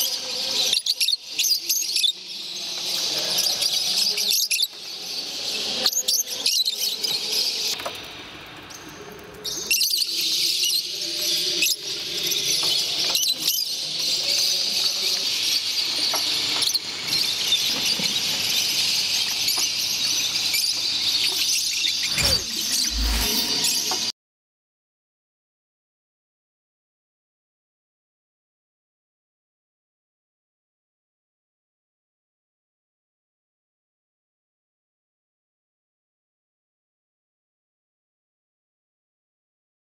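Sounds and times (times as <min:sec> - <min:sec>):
lovebirds chattering and squeaking: 0:00.0 - 0:07.8, 0:09.5 - 0:24.1.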